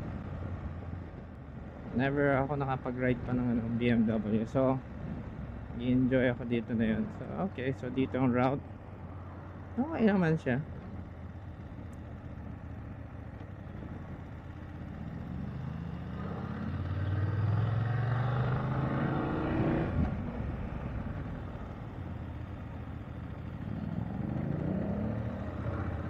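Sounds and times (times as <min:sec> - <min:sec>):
wind and road noise: 0:00.0 - 0:26.0
motorcycle engine accelerating: 0:10.8 - 0:26.0.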